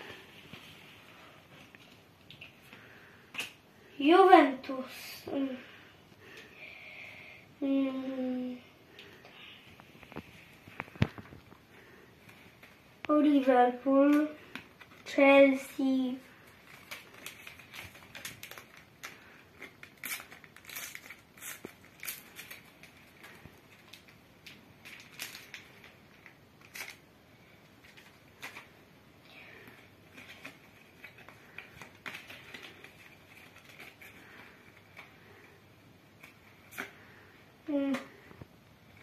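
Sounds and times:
wrapper crinkling: 16.3s - 27.1s, 29.4s - 35.1s.

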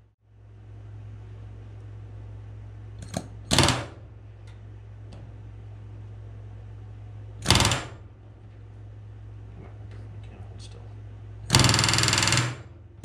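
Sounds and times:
low steady hum: 0.0s - 13.0s
pneumatic rivet gun bursts: 7.4s - 8.0s, 11.5s - 12.7s.

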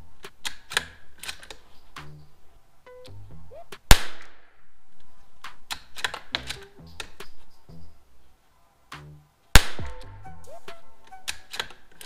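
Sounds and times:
rifle bolt clicks: 0.2s - 1.6s, 5.7s - 7.3s
rifle shot: 3.9s - 4.5s, 9.6s - 10.0s.

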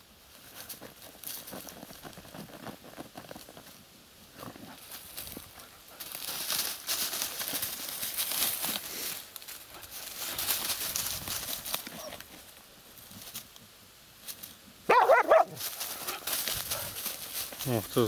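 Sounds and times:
dogs digging in dry reeds: 4.3s - 13.6s, 14.2s - 18.0s
dog barking: 14.9s - 16.2s.

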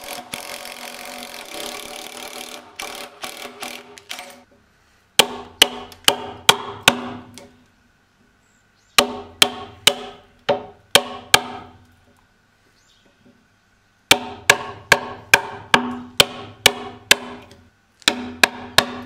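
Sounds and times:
drill boring into wood: 0.0s - 4.4s
hammer striking a chisel: 5.2s - 7.4s, 9.0s - 11.8s, 14.1s - 19.0s.

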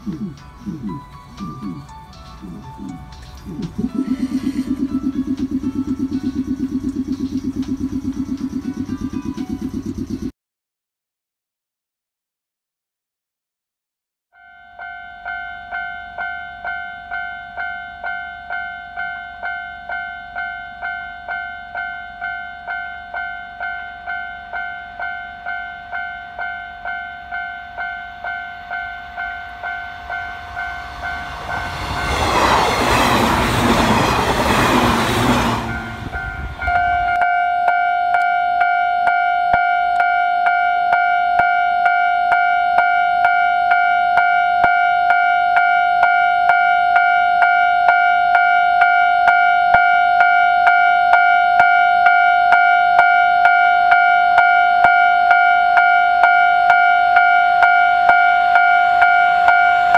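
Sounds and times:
train passing: 0.0s - 10.3s, 15.2s - 59.9s
level crossing bell ringing: 35.2s - 59.9s.

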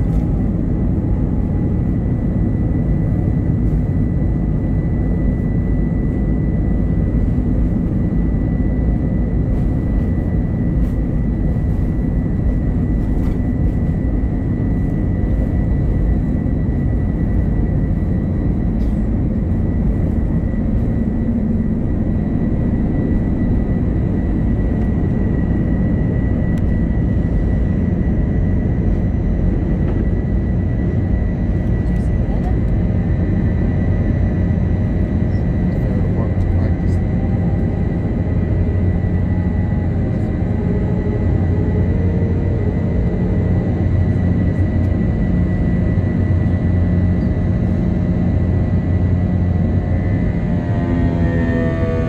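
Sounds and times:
jet engine rumble: 0.0s - 52.0s
thin engine whine: 0.0s - 52.0s.

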